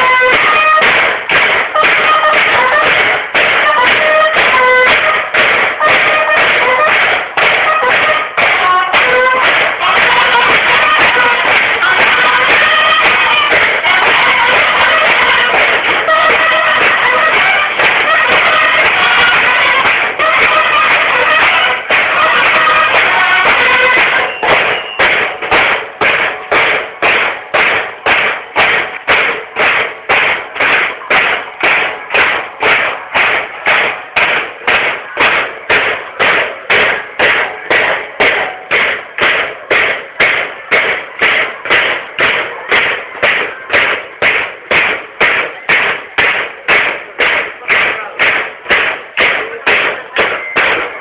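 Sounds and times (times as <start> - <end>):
bugle call: 0.0 - 1.1, 1.7 - 25.7
snare drums marching beat: 0.0 - 51.0.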